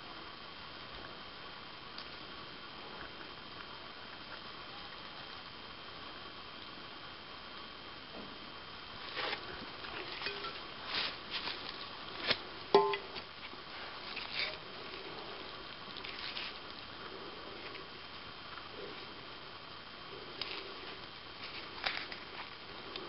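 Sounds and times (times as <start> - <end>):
sharp knock with ring: 12.8 - 13.1.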